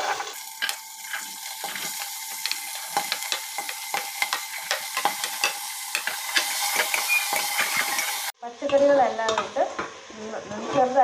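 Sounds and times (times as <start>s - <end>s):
vegetables sizzling in hot oil: 0.0s - 11.0s
steel spoon scraping a pot: 0.6s - 8.3s.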